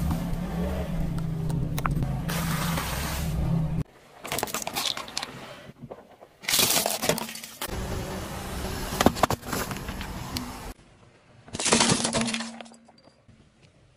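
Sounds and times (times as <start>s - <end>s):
car engine rumble: 0.0s - 3.9s
drink can crushed under tyre: 11.5s - 12.8s.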